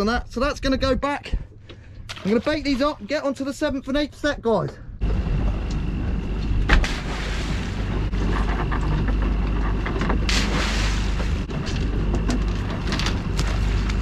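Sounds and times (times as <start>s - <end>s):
outboard motor running: 5.0s - 14.0s.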